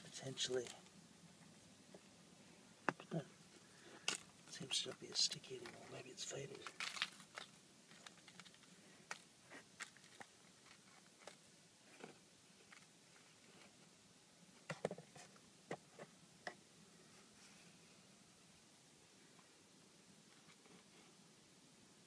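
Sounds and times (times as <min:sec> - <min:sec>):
cellophane wrapper crinkling: 0:06.4 - 0:11.4.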